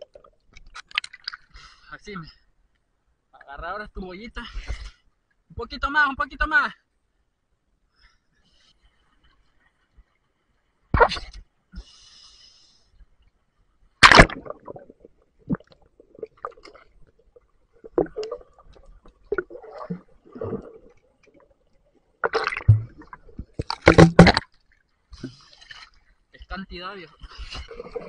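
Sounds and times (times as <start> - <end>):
water splashing: 14.0 - 21.6, 22.2 - 26.0
underwater bubbling and knocks: 14.0 - 24.6.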